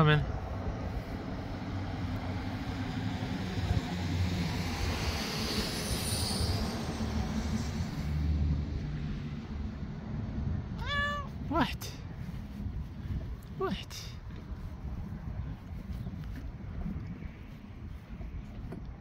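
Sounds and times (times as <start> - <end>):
truck driving past: 0.4 - 10.6.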